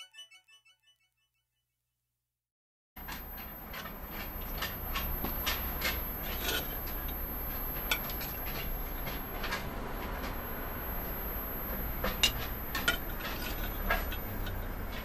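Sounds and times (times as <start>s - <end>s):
steady low hum: 3.0s - 15.0s.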